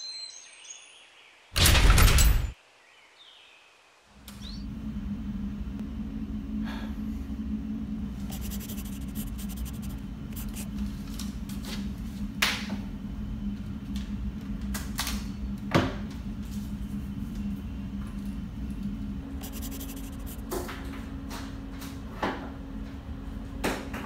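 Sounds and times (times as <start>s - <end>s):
ventilation machine hum: 4.1s - 24.0s
pen and paper clicks and taps: 19.4s - 20.4s.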